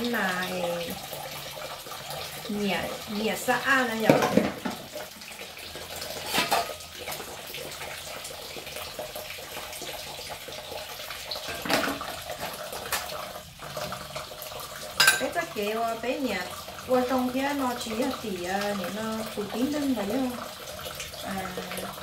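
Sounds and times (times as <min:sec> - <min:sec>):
water running from tap into sink: 0:00.0 - 0:22.0
plates and plastic basket knocking: 0:04.0 - 0:04.9, 0:11.5 - 0:12.1.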